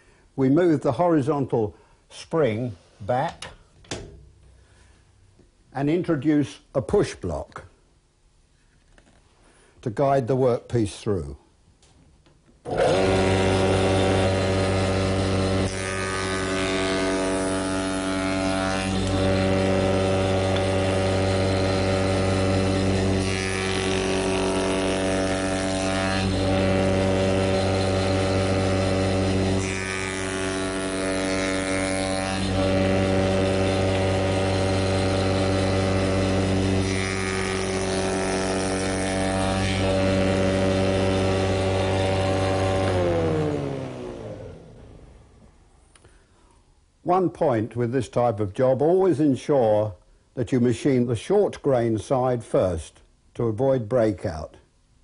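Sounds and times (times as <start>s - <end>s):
cutter cutting wood: 12.6s - 45.2s
wood shaper humming: 12.6s - 45.4s.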